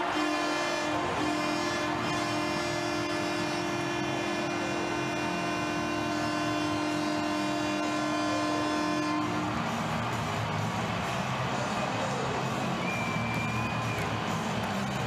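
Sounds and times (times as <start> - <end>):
arena goal horn blast: 0.0 - 9.8
crowd cheering: 0.0 - 15.0.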